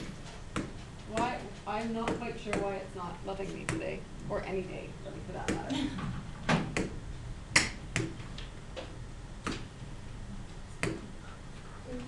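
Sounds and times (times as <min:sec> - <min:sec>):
stylus tapping on screen: 0:00.0 - 0:02.8, 0:03.4 - 0:04.0, 0:06.5 - 0:09.8, 0:10.8 - 0:11.1.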